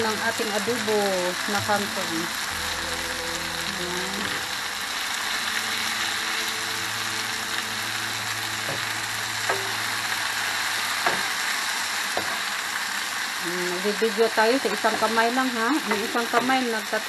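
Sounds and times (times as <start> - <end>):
vegetables sizzling in oil: 0.0 - 17.0
wooden spoon knocking on pan: 11.0 - 11.4, 12.1 - 12.5, 15.8 - 16.6.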